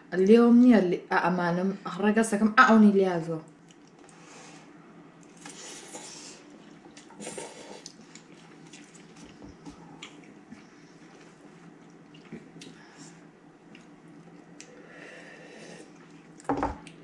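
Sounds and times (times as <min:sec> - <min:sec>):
slurping: 0:05.3 - 0:09.4.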